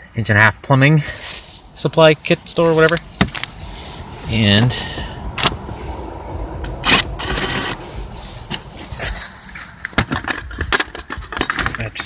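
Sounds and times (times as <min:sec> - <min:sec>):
metal clamp clicks and clinks: 0:09.8 - 0:12.0.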